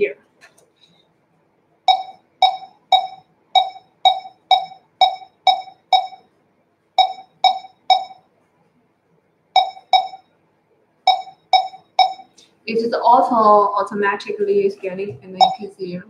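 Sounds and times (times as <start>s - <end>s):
barcode scanner beeps: 1.9s - 6.2s, 7.0s - 8.2s, 9.6s - 10.2s, 11.1s - 12.4s, 15.4s - 15.7s.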